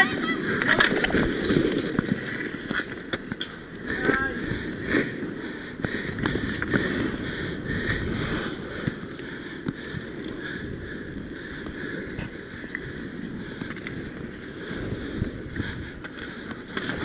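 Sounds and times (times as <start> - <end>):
skate wheels rolling on hard court: 0.0 - 17.0
hockey sticks and puck clacking: 0.6 - 4.3.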